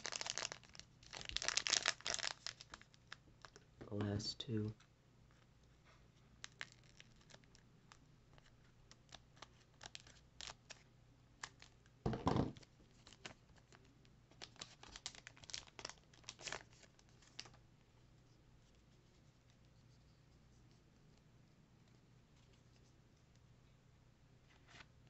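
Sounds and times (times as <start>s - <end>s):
foil wrapper ripping: 0.0s - 2.9s, 6.4s - 7.6s, 14.4s - 16.8s
foil wrapper crinkling: 0.0s - 3.5s, 6.4s - 7.6s, 8.4s - 10.8s, 14.4s - 17.6s.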